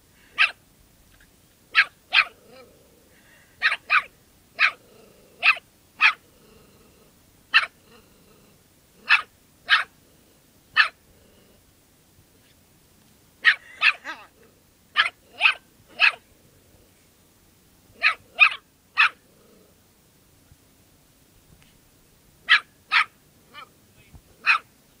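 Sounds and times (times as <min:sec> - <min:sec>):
small dog barking: 0:00.3 - 0:00.6, 0:01.7 - 0:02.7, 0:03.6 - 0:04.8, 0:05.4 - 0:06.2, 0:07.5 - 0:08.0, 0:09.0 - 0:10.0, 0:10.7 - 0:11.0, 0:13.4 - 0:16.3, 0:18.0 - 0:19.2, 0:22.4 - 0:23.8, 0:24.4 - 0:24.7.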